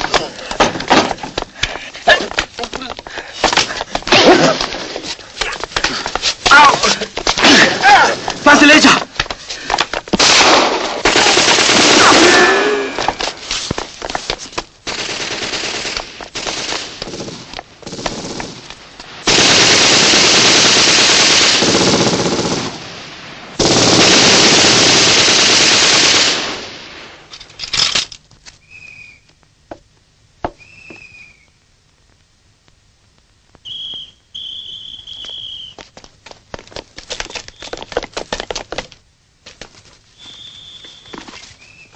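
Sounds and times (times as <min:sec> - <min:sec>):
single gunshots: 0:10.2 - 0:12.4
machine gun fire: 0:10.2 - 0:12.5, 0:14.8 - 0:22.8, 0:23.6 - 0:26.7
high whistling tones: 0:28.6 - 0:29.4, 0:30.6 - 0:31.6, 0:33.6 - 0:35.8, 0:40.1 - 0:41.9.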